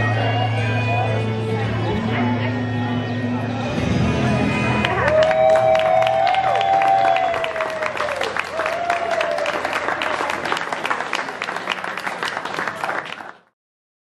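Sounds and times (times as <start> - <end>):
crowd applauding: 4.6 - 13.6.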